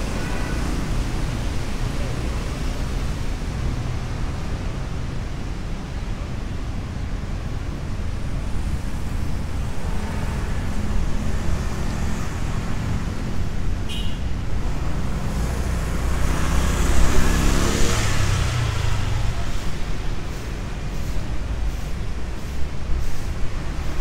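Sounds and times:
low traffic rumble: 0:00.0 - 0:24.0
vehicle passing on wet road: 0:14.8 - 0:24.0.

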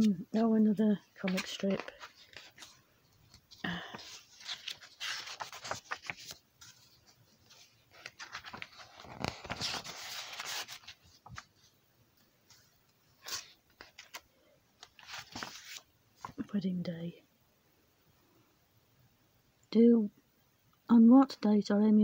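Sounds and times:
paper pages turning: 0:01.2 - 0:11.7, 0:12.4 - 0:16.5.

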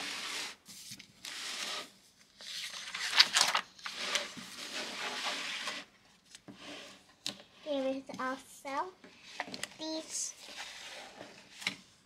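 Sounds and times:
paper rustling and rubbing: 0:00.0 - 0:07.0, 0:09.2 - 0:11.7.

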